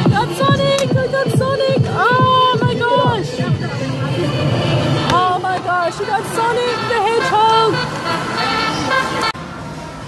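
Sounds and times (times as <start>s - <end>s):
electronic music with fast beat: 0.0s - 7.9s.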